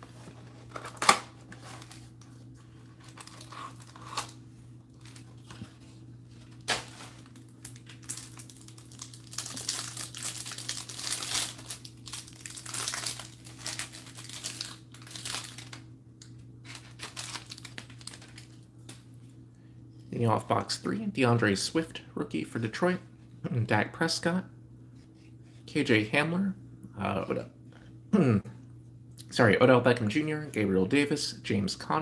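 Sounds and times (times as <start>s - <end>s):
cardboard and wrapping tearing: 3.0s - 4.4s, 6.6s - 15.8s, 16.6s - 18.5s.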